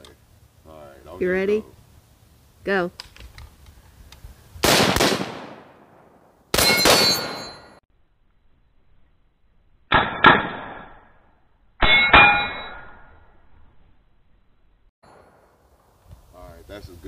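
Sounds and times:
sharp cracks: 0:04.6 - 0:07.4
rifle shots echoing: 0:04.6 - 0:07.8
metallic ring of steel target: 0:06.6 - 0:07.8, 0:09.9 - 0:13.5.

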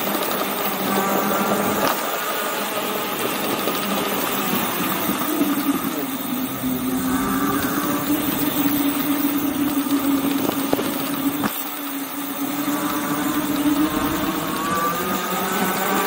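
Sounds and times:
electric motor whining: 0:00.0 - 0:16.0
tyre and wind noise: 0:06.5 - 0:12.0.

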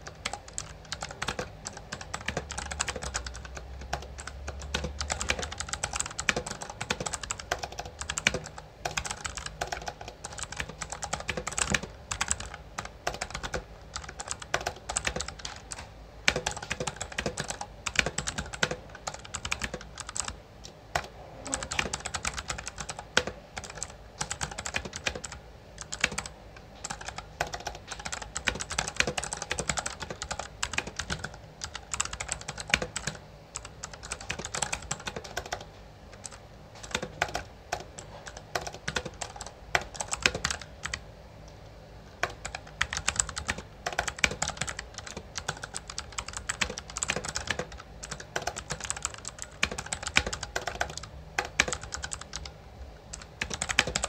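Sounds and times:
mechanical keyboard typing: 0:00.0 - 0:41.0, 0:42.2 - 0:52.5, 0:53.1 - 0:54.0.

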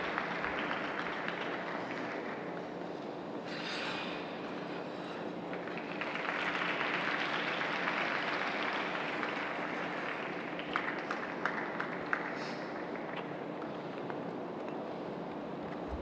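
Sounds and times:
crowd applause: 0:00.0 - 0:02.5, 0:05.5 - 0:13.2.

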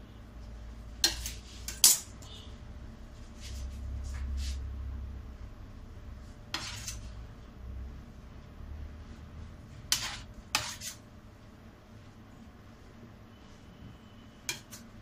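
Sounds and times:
knife scraping frosting: 0:06.5 - 0:07.2, 0:09.9 - 0:11.0.

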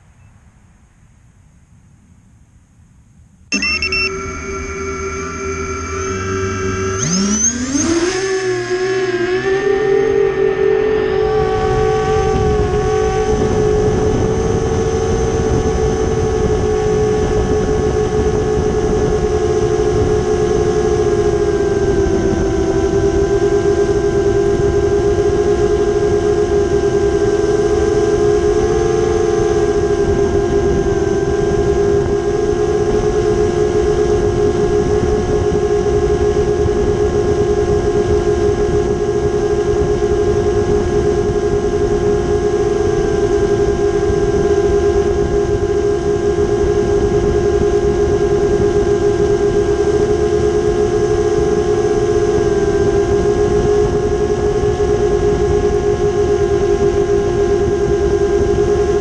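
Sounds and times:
drone propellers buzzing: 0:03.5 - 0:59.0
wind rush: 0:11.1 - 0:25.2.

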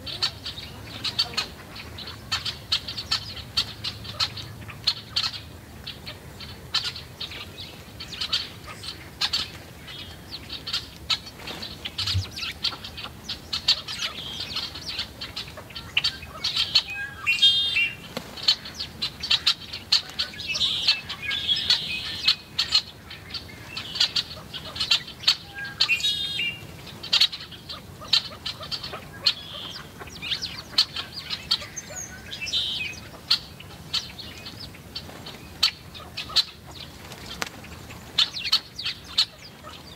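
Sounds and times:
small songbirds chirping: 0:00.0 - 0:39.9
wings fluttering: 0:10.6 - 0:14.7, 0:18.0 - 0:20.4, 0:34.8 - 0:39.9
bird chattering call: 0:11.9 - 0:34.6.

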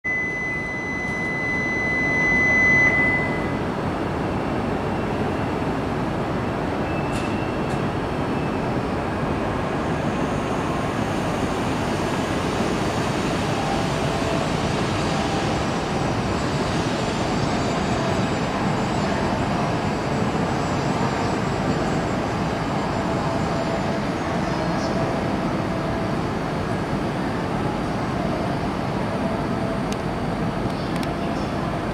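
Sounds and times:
high electronic beep: 0:00.1 - 0:03.6
high-speed train passing: 0:00.1 - 0:31.9.

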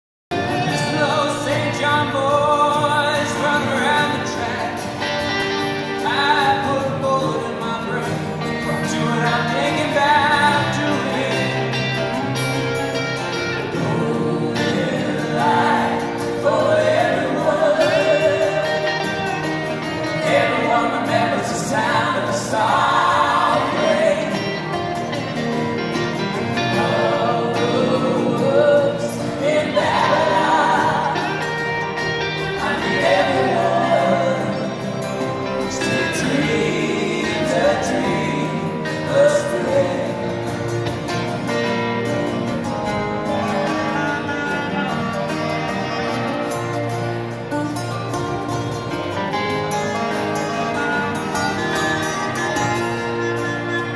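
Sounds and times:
acoustic guitars playing: 0:00.3 - 0:53.9
man and woman singing: 0:00.4 - 0:12.2, 0:13.7 - 0:25.0, 0:26.5 - 0:40.9, 0:43.2 - 0:46.2.

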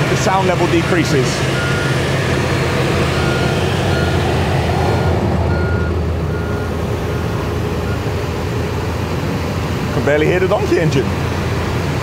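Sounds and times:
engine droning with hiss: 0:00.0 - 0:12.0
warning beeper beeping: 0:00.2 - 0:02.1, 0:03.0 - 0:04.3, 0:04.9 - 0:08.1.

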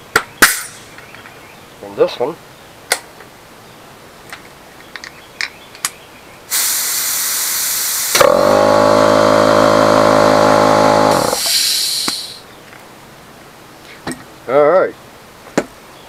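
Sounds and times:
compressed air hissing and whistling: 0:06.5 - 0:12.5.

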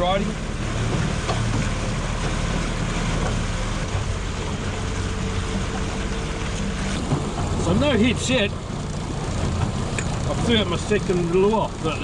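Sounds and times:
outboard motor running: 0:00.0 - 0:12.0
water rushing along hull: 0:00.0 - 0:12.0.

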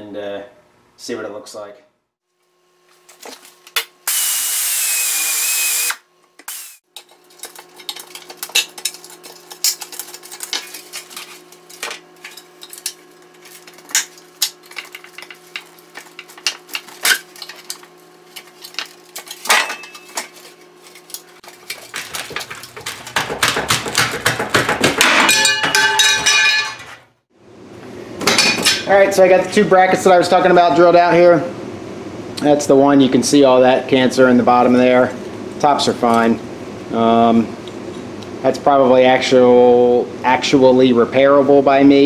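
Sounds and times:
pneumatic drill whining: 0:04.1 - 0:06.8.

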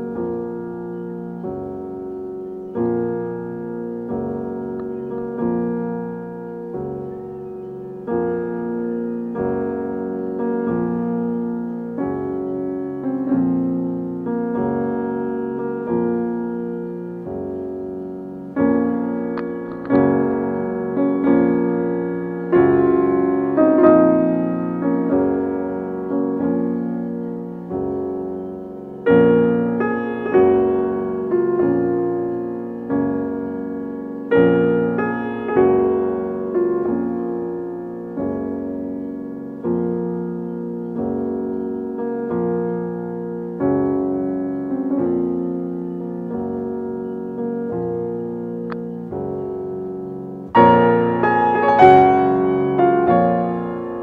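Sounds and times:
slow piano music: 0:00.0 - 0:54.0.

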